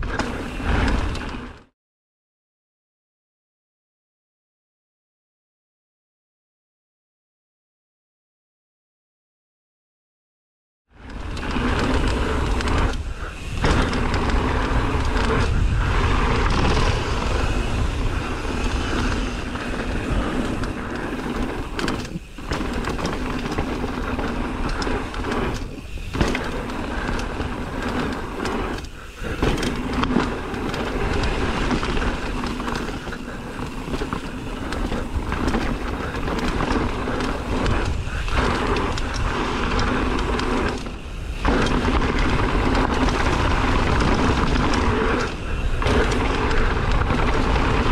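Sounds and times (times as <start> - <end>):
bike tyre rattle: 0.0 - 1.7, 11.0 - 47.9
wind rush on microphone: 11.0 - 47.9.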